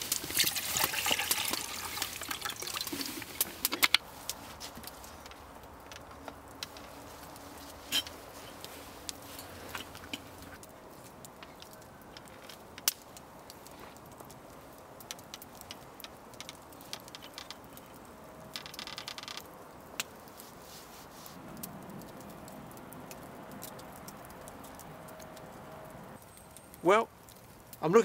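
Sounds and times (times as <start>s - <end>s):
fire pops: 0.0s - 25.5s
campfire crackling: 0.0s - 28.0s.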